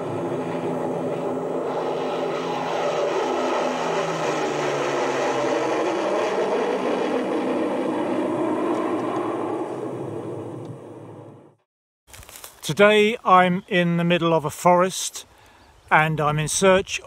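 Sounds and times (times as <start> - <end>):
propeller aircraft engines droning: 0.0 - 11.6.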